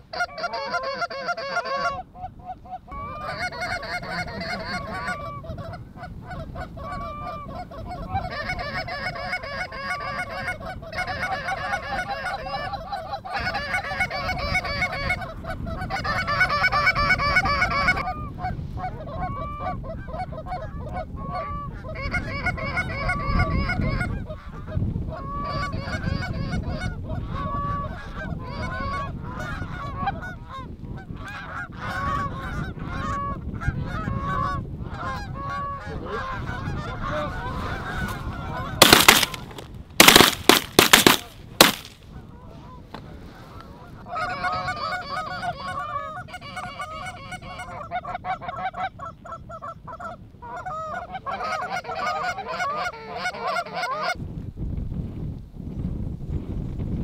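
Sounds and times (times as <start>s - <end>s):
geese honking: 0.0s - 20.7s, 31.2s - 42.0s, 43.5s - 54.2s
wind rumbling on microphone: 0.0s - 57.0s.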